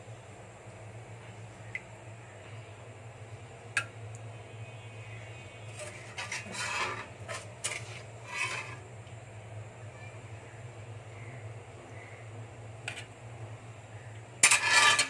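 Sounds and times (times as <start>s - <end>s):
ladle scraping metal pot: 5.7s - 8.9s, 14.4s - 15.0s.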